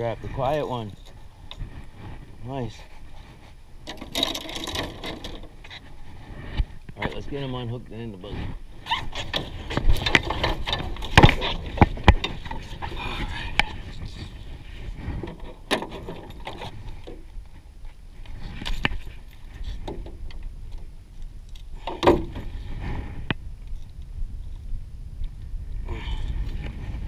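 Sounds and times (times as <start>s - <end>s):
low steady rumble: 0.0s - 27.0s
knocks and clatter in rowboat: 9.1s - 12.8s, 15.0s - 17.2s.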